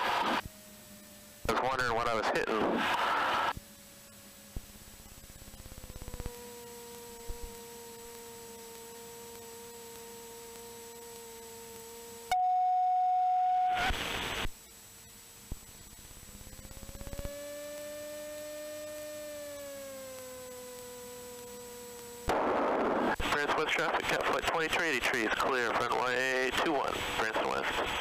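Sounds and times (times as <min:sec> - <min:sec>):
aircraft engine: 0:00.0 - 0:12.3, 0:15.3 - 0:22.3.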